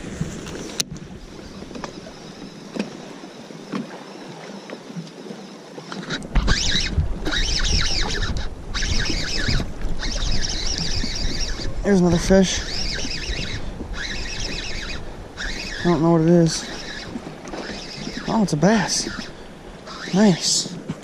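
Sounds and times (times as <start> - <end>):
wind buffeting microphone: 0.0 - 3.7, 6.1 - 21.0
water lapping: 0.0 - 21.0
fishing reel cranking: 6.1 - 20.6.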